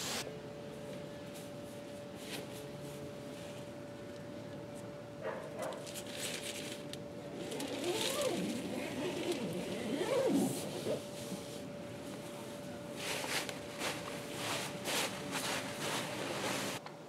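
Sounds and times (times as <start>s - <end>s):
wavering whine: 0.0s - 16.8s
nylon tent fabric rustling: 5.8s - 11.8s, 12.9s - 16.8s.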